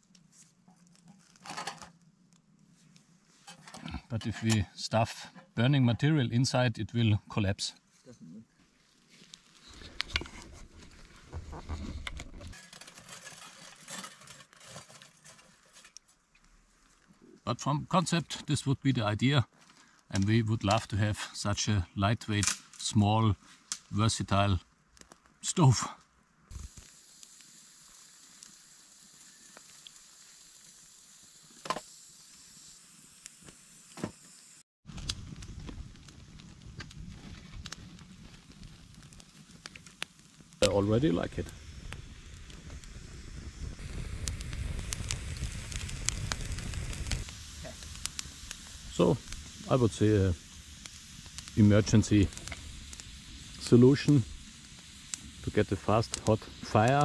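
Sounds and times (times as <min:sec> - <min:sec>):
dry twigs crackling and snapping: 0:00.0 - 0:03.1, 0:08.7 - 0:17.2, 0:22.4 - 0:22.9, 0:23.5 - 0:24.0, 0:24.9 - 0:25.4, 0:34.9 - 0:43.1, 0:43.8 - 0:49.8, 0:50.6 - 0:57.0.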